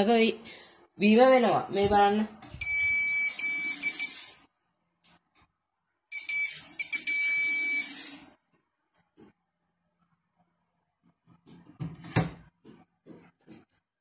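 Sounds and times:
high-pitched buzzer beeping: 2.6s - 4.3s, 6.1s - 8.1s
water running from tap: 7.7s - 8.3s.

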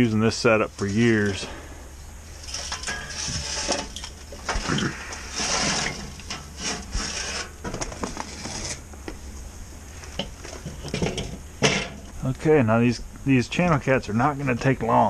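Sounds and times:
charcoal briquettes scraping and clinking: 2.4s - 8.8s, 10.2s - 12.2s.

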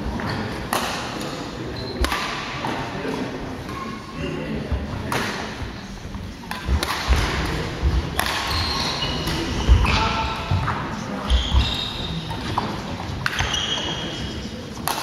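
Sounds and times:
voices echoing in hall: 0.0s - 15.0s
racket hitting shuttlecock: 0.7s - 1.4s, 2.0s - 2.8s, 6.4s - 10.8s, 12.3s - 13.5s, 14.7s - 15.0s
shoes squeaking on wooden floor: 8.5s - 10.1s, 11.2s - 12.3s.

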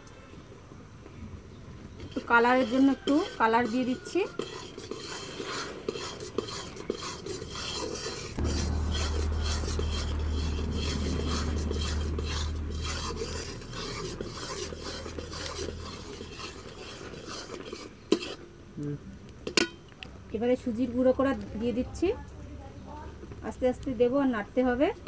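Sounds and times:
metal spatula scraping a pan: 2.0s - 18.5s
low rumble: 8.4s - 16.2s.

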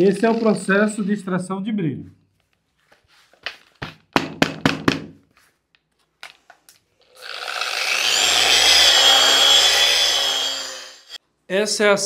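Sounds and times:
sharp knocks: 3.8s - 5.2s
electric polisher whine: 7.1s - 11.2s.

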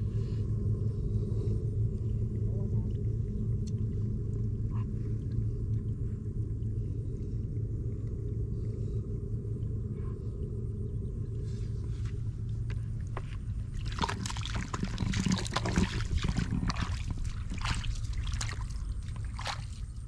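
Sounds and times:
steady low rumble: 0.0s - 20.0s
shallow water splashing: 11.4s - 20.0s.

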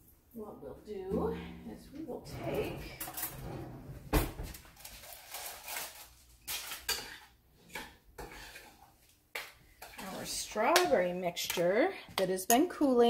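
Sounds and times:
dishes and utensils clinking: 6.5s - 8.8s.

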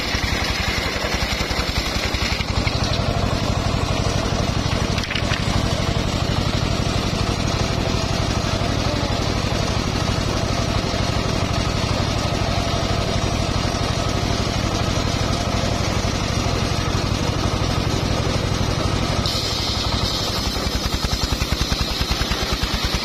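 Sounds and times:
circular saw cutting wood: 0.0s - 23.0s
hiss of saw blade cutting: 19.2s - 23.0s.

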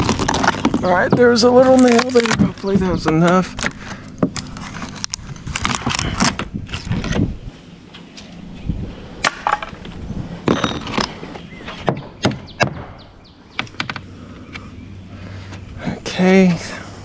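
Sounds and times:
rotted wood cracking and snapping: 0.0s - 7.3s.

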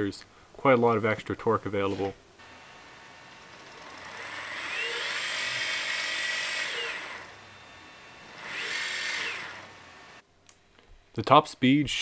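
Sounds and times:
electric motors whining: 2.4s - 10.2s.

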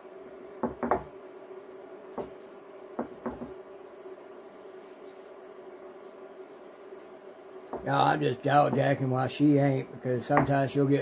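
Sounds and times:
induction burner hum: 0.0s - 11.0s
rolling pin knocking on mat: 0.6s - 1.1s, 3.0s - 3.6s.

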